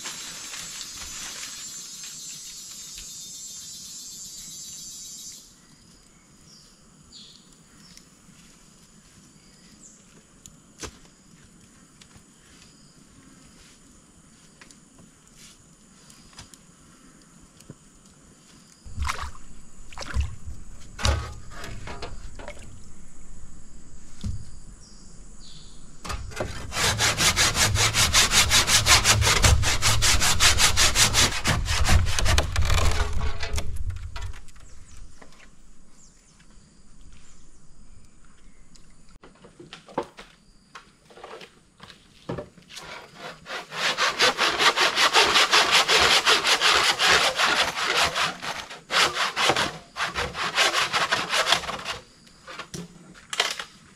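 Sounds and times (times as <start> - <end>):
knocks and scrapes: 18.9 - 23.4, 26.0 - 35.8, 41.0 - 53.6
rasping hand tool strokes: 26.1 - 33.6, 42.8 - 52.0.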